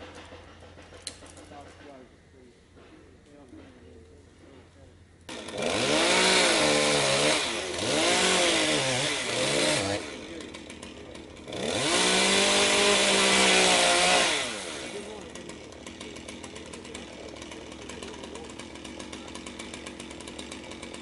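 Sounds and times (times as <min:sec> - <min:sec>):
chainsaw revving and idling: 0:05.3 - 0:21.0.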